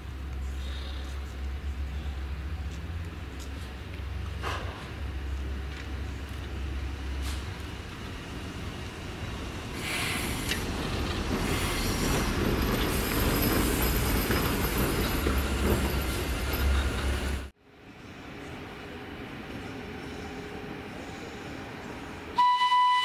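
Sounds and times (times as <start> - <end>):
locomotive wheels rumbling and rattling: 2.4 - 17.5.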